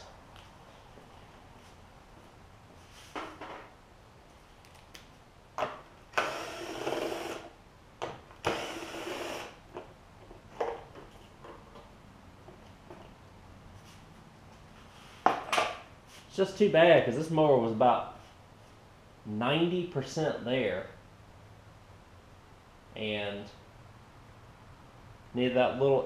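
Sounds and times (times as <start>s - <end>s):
cordless drill spinning out bolts: 6.1s - 7.5s, 8.4s - 9.6s.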